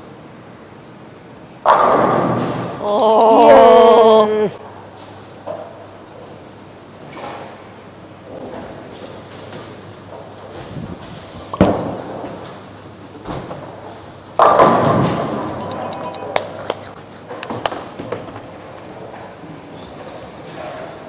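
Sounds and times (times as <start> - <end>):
high chiming tones: 2.8 - 4.3, 15.6 - 16.6.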